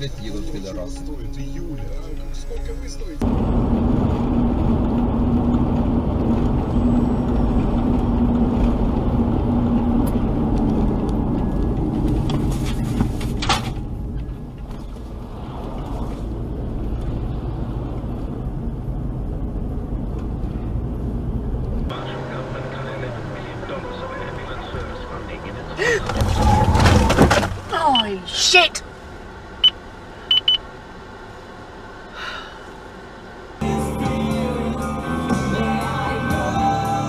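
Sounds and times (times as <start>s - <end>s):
low hum: 0.0s - 27.7s
engine and tyre drone: 0.0s - 37.0s.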